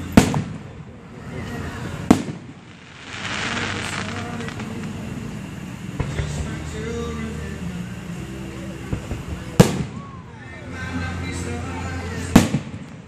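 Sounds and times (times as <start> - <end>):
fireworks bangs: 0.0 - 6.6, 8.9 - 10.2, 12.3 - 13.0
crackling hiss: 0.0 - 13.0.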